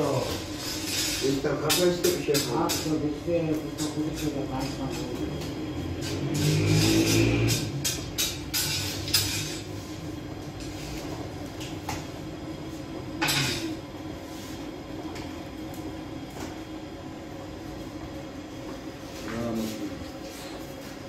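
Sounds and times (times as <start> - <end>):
steady low hum: 0.0 - 21.0
metal peel scraping on pebbles: 0.4 - 1.5, 6.0 - 9.7.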